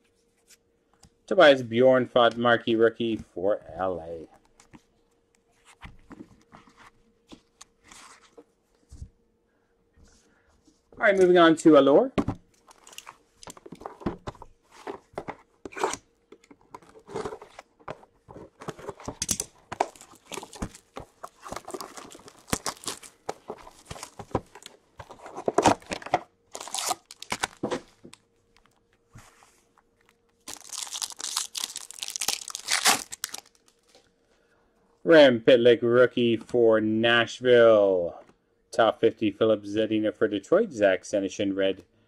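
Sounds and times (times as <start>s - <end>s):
plastic shrink-wrap crinkling: 19.6s - 28.8s, 30.0s - 34.0s
foil pack tearing open: 19.8s - 24.2s, 25.3s - 27.6s, 30.4s - 33.7s.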